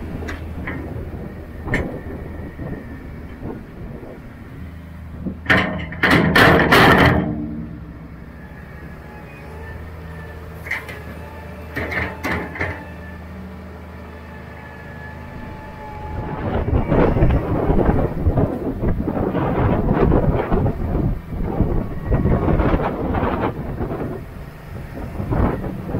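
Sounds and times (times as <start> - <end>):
loader bucket clanking: 0.0 - 14.0
rough rumbling and rattling: 0.0 - 25.9
tractor engine running: 0.0 - 25.9.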